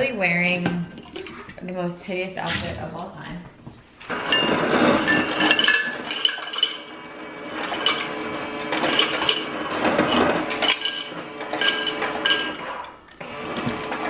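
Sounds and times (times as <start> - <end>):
dishes and cutlery clinking: 4.2 - 6.9, 8.8 - 12.9.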